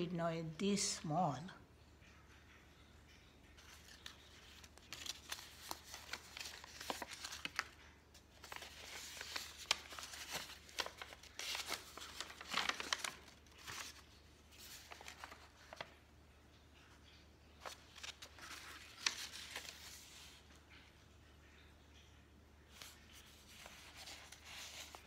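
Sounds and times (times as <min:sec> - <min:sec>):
paper rustling and crinkling: 0:03.6 - 0:16.0, 0:17.6 - 0:20.9, 0:22.7 - 0:25.0.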